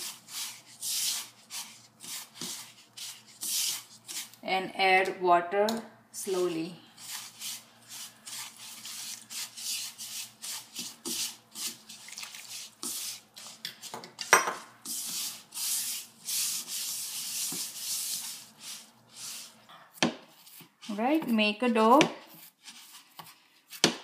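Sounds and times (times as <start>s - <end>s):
fingers rubbing dough in bowl: 0.0s - 4.4s, 6.3s - 19.6s.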